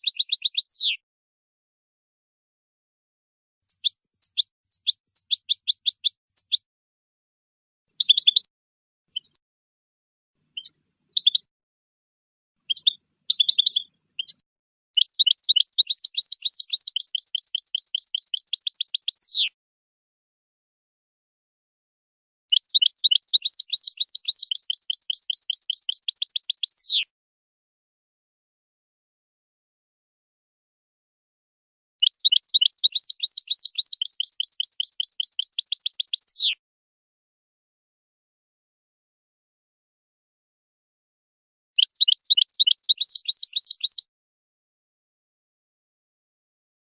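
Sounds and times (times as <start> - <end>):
goldfinch singing: 0.0 - 1.0, 3.7 - 6.6, 8.0 - 8.5, 9.2 - 9.4, 10.6 - 11.5, 12.7 - 14.4, 15.0 - 19.5, 22.5 - 27.1, 32.0 - 36.6, 41.8 - 44.1.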